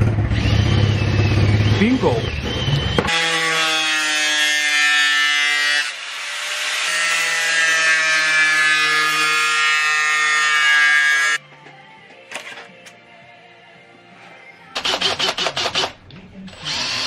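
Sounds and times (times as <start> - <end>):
power tool motor whine: 16.6 - 17.0.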